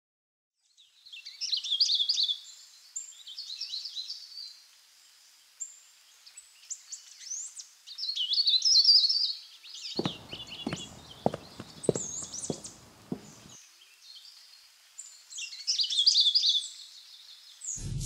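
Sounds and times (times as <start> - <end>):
footsteps on concrete steps: 10.0 - 13.6.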